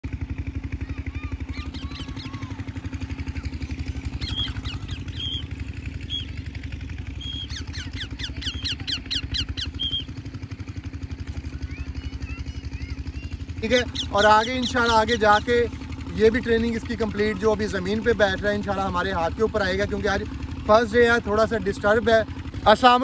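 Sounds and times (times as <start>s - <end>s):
engine running with low throb: 0.0s - 23.0s
bird shrill calls: 1.1s - 2.6s, 3.4s - 6.4s, 7.1s - 10.3s, 11.6s - 15.6s.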